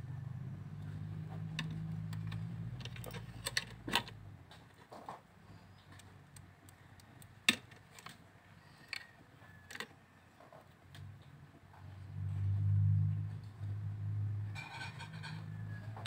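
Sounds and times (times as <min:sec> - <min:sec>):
low hum: 0:11.9 - 0:16.0.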